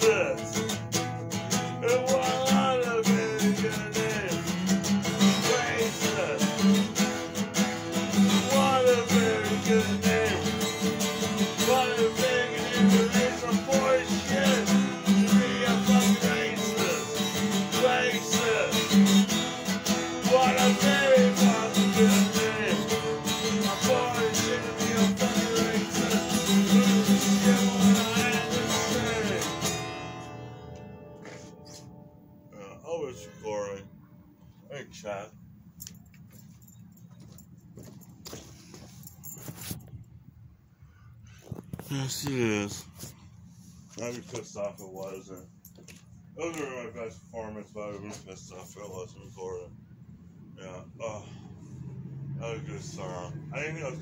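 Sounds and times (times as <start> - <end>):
man singing: 0.0 - 0.7, 1.7 - 6.8, 8.2 - 19.2, 20.1 - 29.9
acoustic guitar strumming: 0.0 - 33.8.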